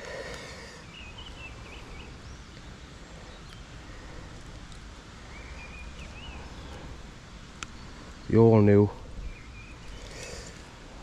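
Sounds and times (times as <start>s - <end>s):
birds chirping: 0.0s - 11.0s
low outdoor background noise: 0.0s - 11.0s.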